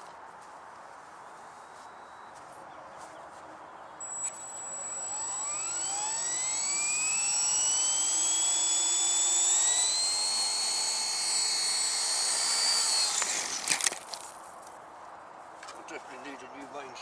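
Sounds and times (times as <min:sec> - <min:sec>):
steady high tone: 0:04.0 - 0:12.8
electric motor whine rising: 0:04.0 - 0:13.9.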